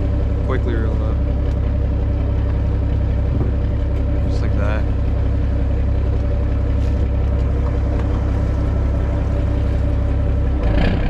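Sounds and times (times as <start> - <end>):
boat engine running: 0.0 - 11.0.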